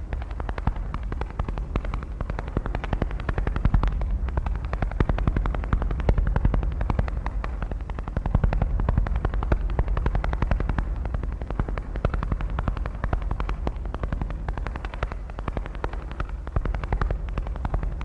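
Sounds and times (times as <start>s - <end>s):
deep steady rumble: 0.0s - 18.0s.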